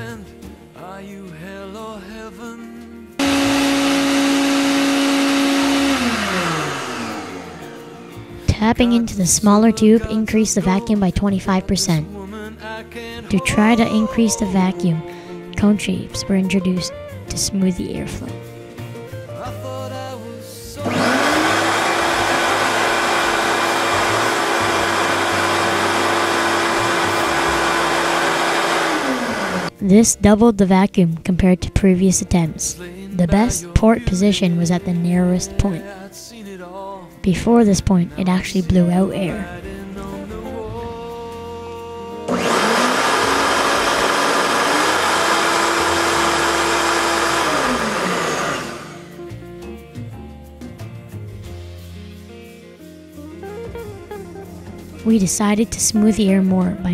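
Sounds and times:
shop vacuum motor whine: 0:03.2 - 0:08.4, 0:20.8 - 0:29.8, 0:42.3 - 0:49.2.

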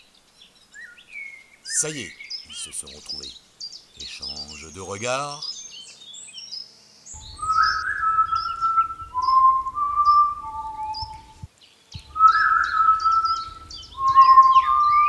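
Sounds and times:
birds chirping: 0:00.0 - 0:15.0
person whistling a tune: 0:07.4 - 0:11.5, 0:12.1 - 0:15.0.

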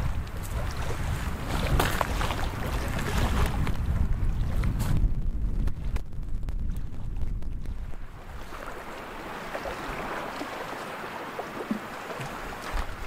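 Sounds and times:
waves lapping on shore: 0:00.0 - 0:05.1, 0:06.7 - 0:13.0
wind on microphone: 0:00.0 - 0:13.0.

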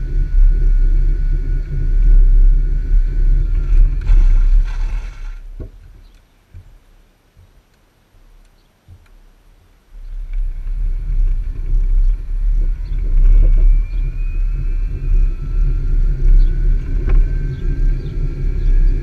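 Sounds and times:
thin whine rising in pitch: 0:00.0 - 0:05.6, 0:10.0 - 0:19.0
wind rumble on microphone: 0:00.0 - 0:07.6, 0:09.9 - 0:19.0
trailer road noise on tarmac: 0:00.0 - 0:19.0.

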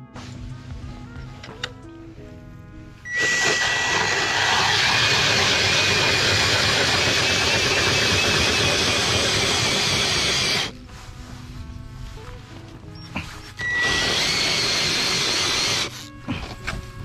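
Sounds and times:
ice auger grinding through ice: 0:03.1 - 0:10.8, 0:13.0 - 0:16.8.

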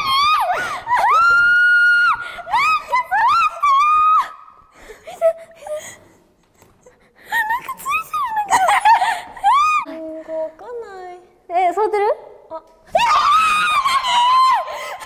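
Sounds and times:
young women shrieking: 0:00.0 - 0:04.5, 0:09.4 - 0:09.9, 0:12.9 - 0:15.0.

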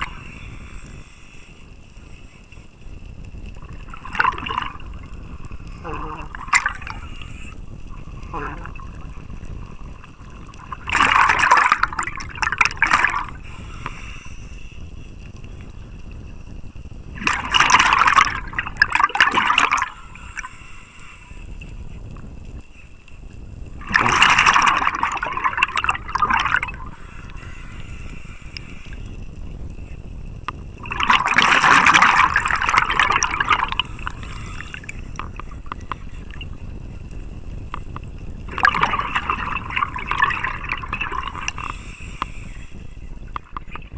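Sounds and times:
exhaled bubbles rushing underwater: 0:00.0 - 0:00.6, 0:03.2 - 0:13.6, 0:15.2 - 0:20.5, 0:23.4 - 0:27.5, 0:28.6 - 0:43.9
regulator hiss: 0:13.2 - 0:15.6, 0:26.8 - 0:30.0, 0:33.7 - 0:37.0, 0:41.3 - 0:43.2.

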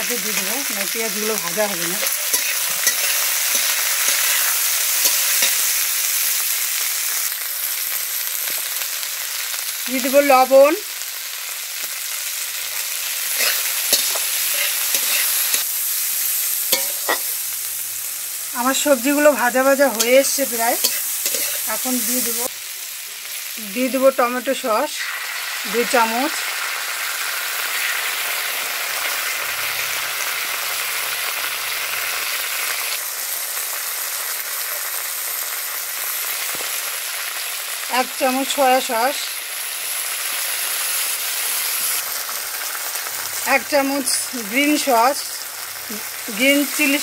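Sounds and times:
vegetables sizzling in oil: 0:00.0 - 0:47.0
metal spatula scraping pan: 0:01.8 - 0:05.8, 0:13.3 - 0:15.7, 0:20.8 - 0:21.7.

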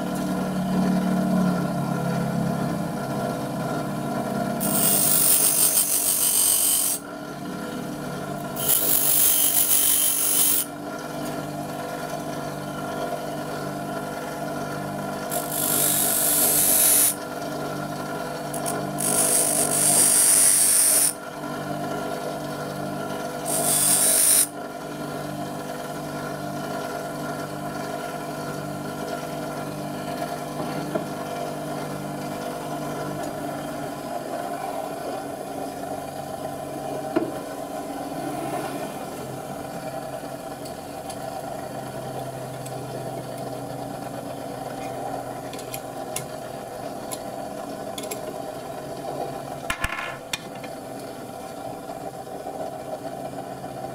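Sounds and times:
bench grinder humming: 0:00.0 - 0:49.0
high-pitched grinding hiss: 0:04.6 - 0:07.0, 0:23.5 - 0:24.5.

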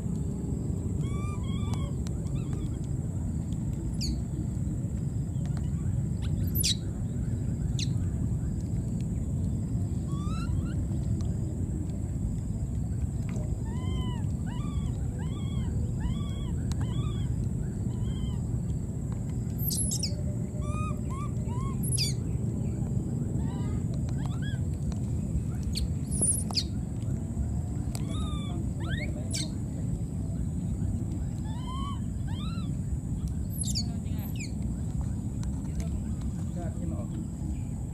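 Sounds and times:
low rumble: 0:00.0 - 0:37.9
baby monkeys crying: 0:01.0 - 0:02.8, 0:10.1 - 0:10.8, 0:13.6 - 0:18.5, 0:19.6 - 0:22.2, 0:28.0 - 0:29.6, 0:31.4 - 0:32.8, 0:33.5 - 0:34.5.

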